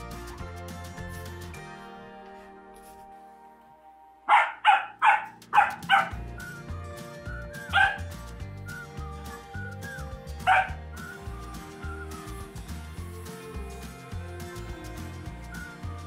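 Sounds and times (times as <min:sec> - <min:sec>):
puppy barking: 0:04.3 - 0:06.2, 0:07.6 - 0:08.0, 0:10.4 - 0:10.8.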